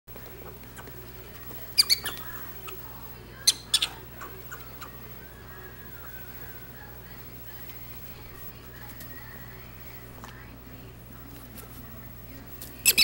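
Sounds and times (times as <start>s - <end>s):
prairie dogs squeaking: 0.2s - 7.7s, 12.8s - 13.0s.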